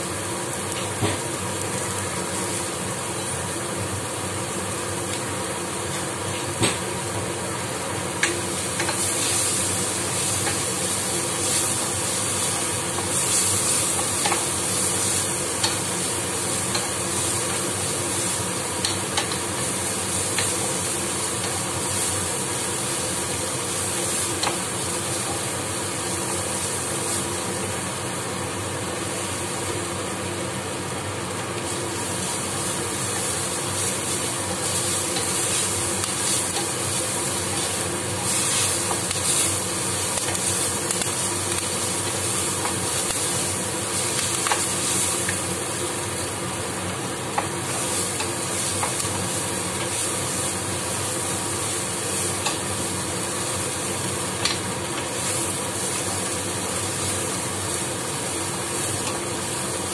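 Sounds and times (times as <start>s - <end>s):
steady hum: 0.0s - 59.9s
vegetables sizzling in oil: 0.0s - 59.9s.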